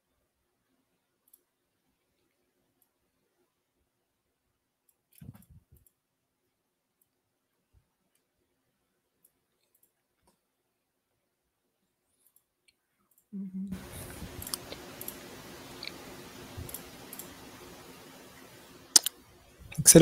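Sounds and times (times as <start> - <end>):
microphone hiss: 13.6 - 20.0
computer mouse clicks: 14.2 - 17.8, 18.9 - 19.2.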